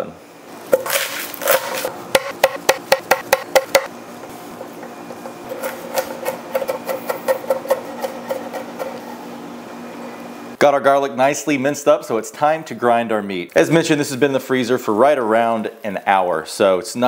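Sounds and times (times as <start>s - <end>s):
knife chopping on wooden board: 0.8s - 3.9s.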